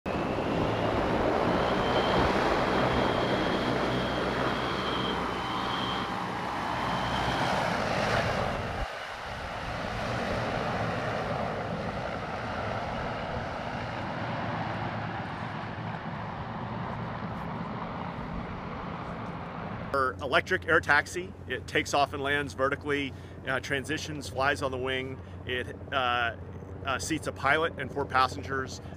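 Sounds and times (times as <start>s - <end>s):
electric propellers whirring: 0.1s - 19.8s
aircraft droning in flight: 0.1s - 28.9s.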